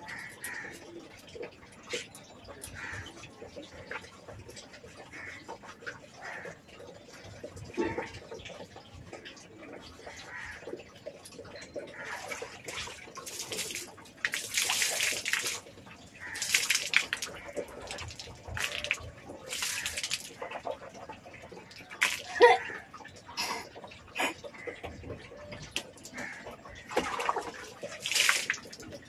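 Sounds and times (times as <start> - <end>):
water splashing in a basin: 0.0 - 29.0.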